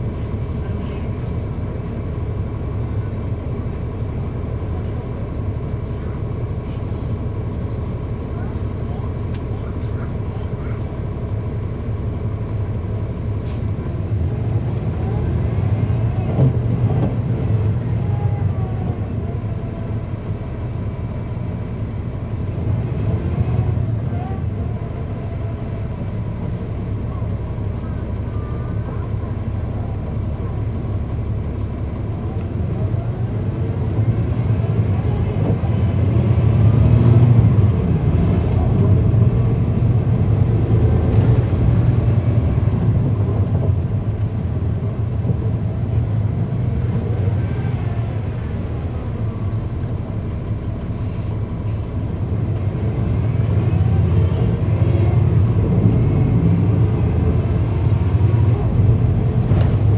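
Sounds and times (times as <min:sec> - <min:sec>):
bus diesel engine: 0:00.0 - 0:59.9
engine cooling fans: 0:00.0 - 0:59.9.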